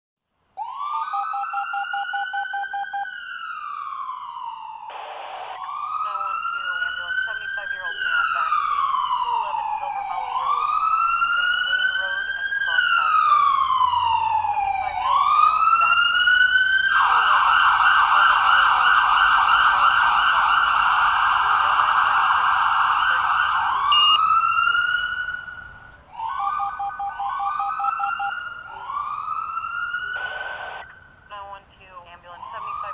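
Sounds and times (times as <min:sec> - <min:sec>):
police siren wailing: 0:00.6 - 0:32.9
rapid short beeps: 0:23.9 - 0:24.2.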